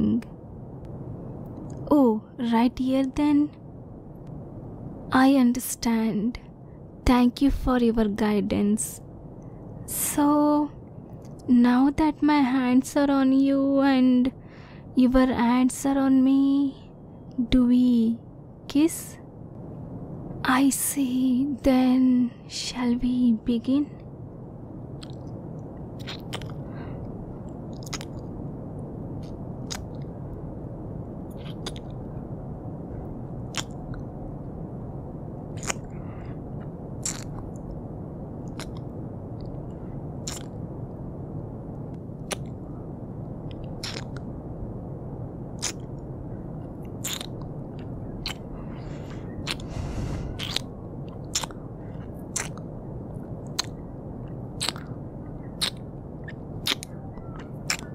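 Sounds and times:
low background hum: 0.0s - 57.9s
lip smacks and mouth clicks: 25.0s - 25.4s, 26.0s - 26.6s, 27.7s - 28.3s, 29.2s - 30.1s, 31.3s - 32.0s, 33.5s - 34.0s, 35.6s - 36.0s, 37.0s - 37.7s, 38.4s - 39.6s, 40.2s - 40.6s, 42.2s - 42.6s, 43.5s - 44.3s, 45.6s - 46.0s, 46.8s - 48.5s, 49.4s - 49.7s, 50.4s - 52.7s, 53.4s - 53.8s, 54.6s - 54.9s, 55.6s - 57.9s.

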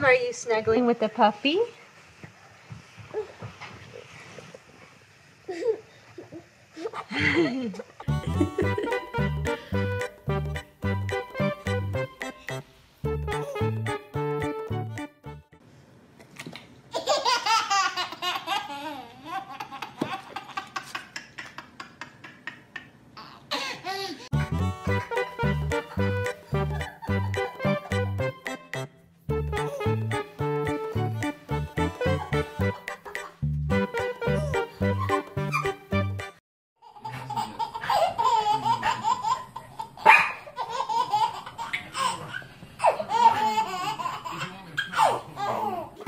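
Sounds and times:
baby giggling: 8.0s - 10.2s, 13.3s - 13.9s, 24.8s - 28.2s, 29.6s - 30.0s, 31.8s - 33.4s, 34.2s - 35.9s, 36.8s - 40.0s
small dog barking: 40.0s - 40.5s.

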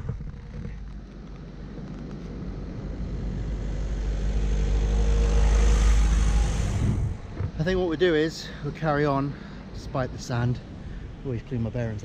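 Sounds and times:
vehicle passing by: 2.5s - 8.8s.

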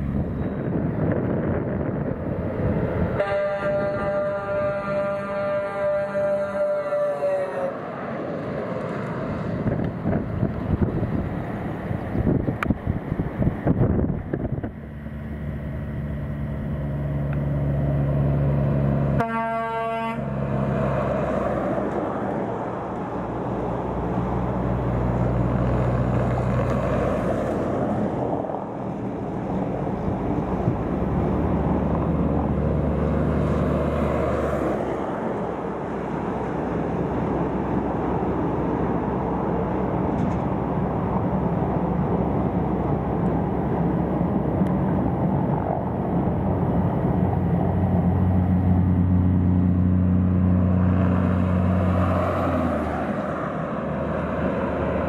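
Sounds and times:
air horn blast: 3.2s - 7.8s, 19.2s - 20.4s.

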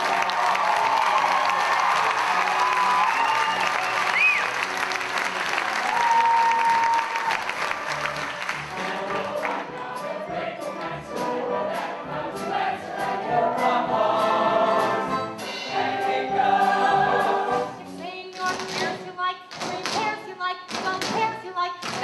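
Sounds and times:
audience clapping: 0.0s - 9.6s
cast singing in chorus with band: 8.7s - 18.0s.

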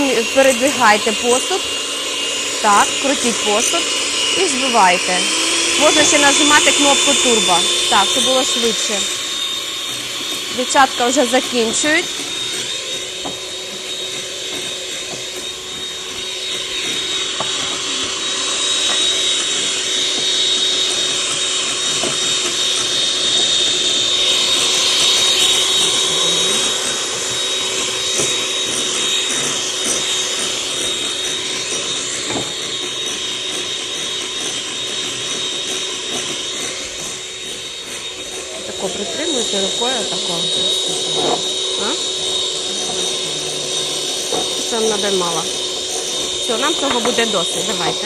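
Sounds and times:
electric hand mixer whipping: 0.0s - 48.0s.

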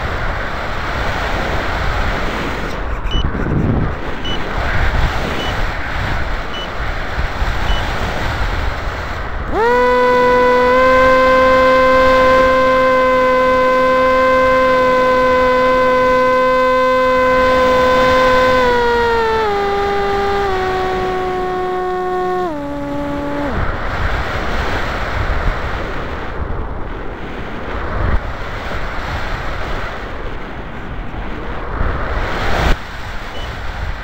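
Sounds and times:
motor and propeller whine: 1.1s - 24.9s.

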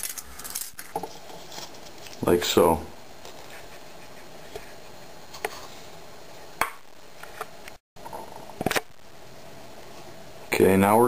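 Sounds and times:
faint steady hiss: 8.4s - 11.0s.

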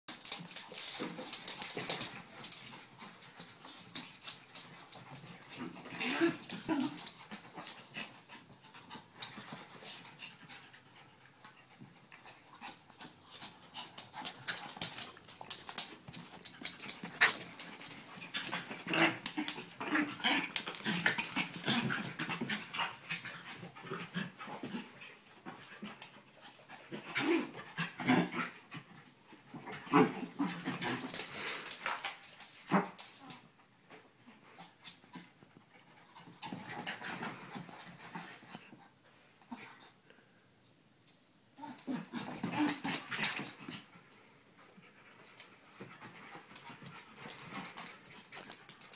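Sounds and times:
clicks and rustles: 0.1s - 5.6s, 12.1s - 22.5s, 45.2s - 48.9s
dogs panting and snuffling: 34.2s - 40.0s, 41.9s - 48.9s.

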